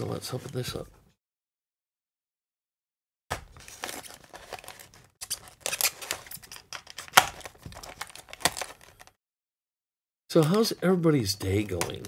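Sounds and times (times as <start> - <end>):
plastic packaging crinkling: 3.3 - 9.2
sharp plastic crack: 3.3 - 9.2.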